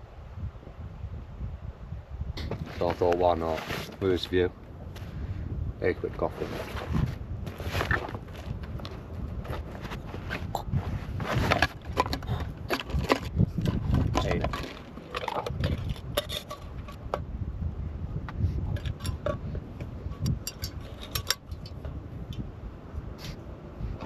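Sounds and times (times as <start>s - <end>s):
wind rumble on microphone: 0.0s - 24.0s
rustling: 2.6s - 4.3s, 6.2s - 17.1s
metal cookware clinking: 20.3s - 21.8s.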